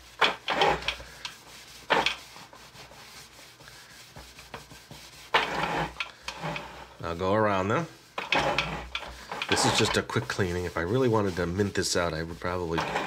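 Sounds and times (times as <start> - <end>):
paper towel wiping plastic piece: 0.0 - 13.0.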